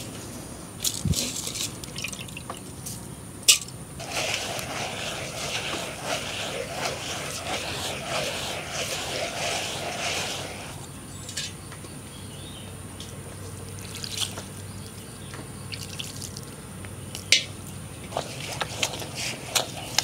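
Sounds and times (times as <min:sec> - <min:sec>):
water drips and splashes: 0:01.8 - 0:02.7, 0:13.7 - 0:14.7, 0:15.7 - 0:16.5
stone grinder grinding: 0:04.0 - 0:10.8.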